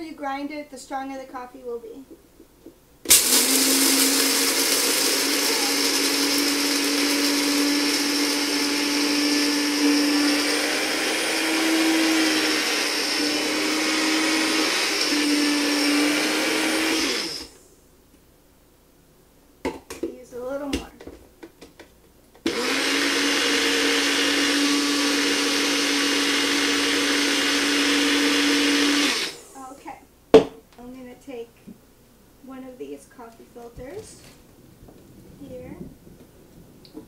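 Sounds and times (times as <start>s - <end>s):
electric coffee grinder grinding: 3.1s - 17.6s, 22.4s - 29.7s.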